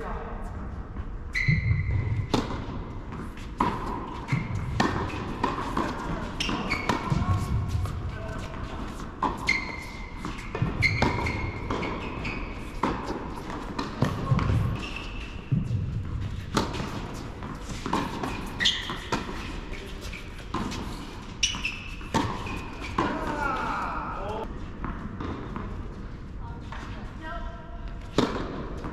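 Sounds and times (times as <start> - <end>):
shoe squeaks: 1.3 - 2.3, 4.1 - 13.5, 14.3 - 15.6, 16.5 - 23.7
tennis balls struck and bouncing: 1.4 - 23.7, 24.8 - 26.0, 27.9 - 28.9.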